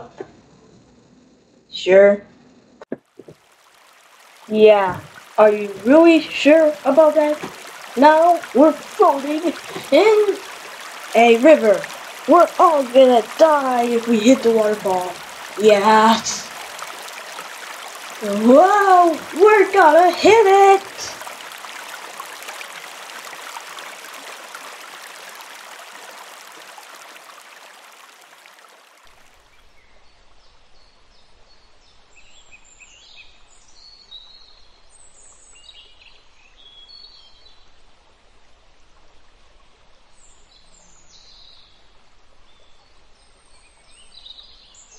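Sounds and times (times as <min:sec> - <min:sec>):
low steady hiss: 0:00.0 - 0:44.9
waterfall rushing: 0:03.2 - 0:28.9
birds chirping faintly: 0:04.0 - 0:28.0.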